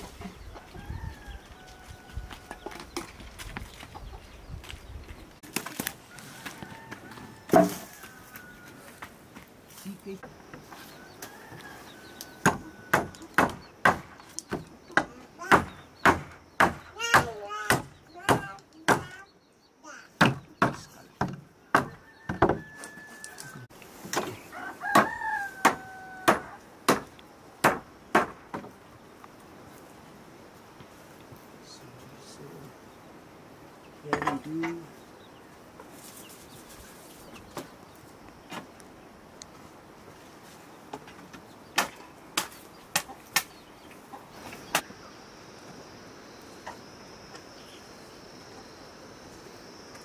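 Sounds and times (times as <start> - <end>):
rooster crowing: 0.5 - 2.8, 6.1 - 9.0, 10.7 - 13.3, 21.8 - 23.7, 24.4 - 26.7
sharp wooden knocks: 12.4 - 19.2, 20.2 - 22.7, 24.1 - 28.8.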